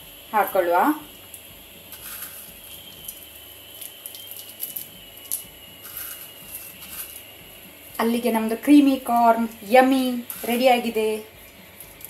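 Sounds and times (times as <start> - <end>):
chip crumbs crackling in cheese: 1.9 - 7.3.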